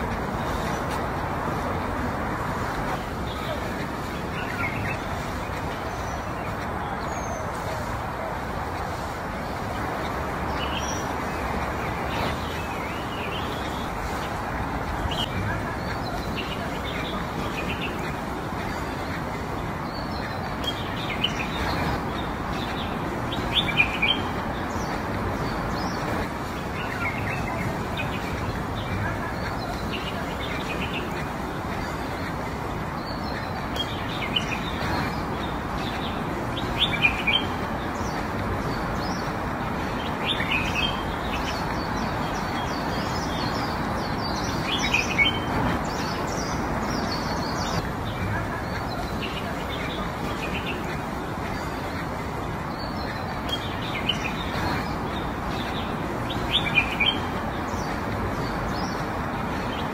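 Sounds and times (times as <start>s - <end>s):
birds chirping: 0.0s - 59.9s
outdoor ambience hiss: 0.0s - 59.9s.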